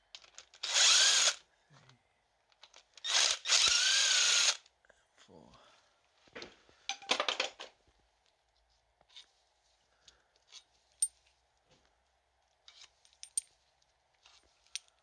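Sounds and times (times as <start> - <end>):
metallic clinks of bolts: 13.1 - 13.5.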